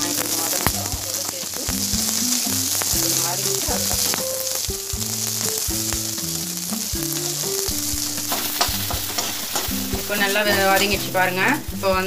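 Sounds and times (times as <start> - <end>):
food sizzling in hot oil: 0.0 - 12.0
spatula scraping and tapping pan: 2.8 - 11.1.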